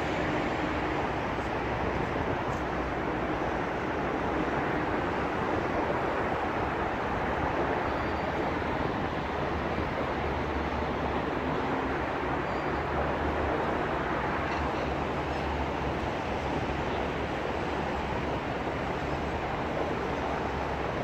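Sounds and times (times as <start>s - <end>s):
traffic rumbling overhead: 0.0s - 21.0s.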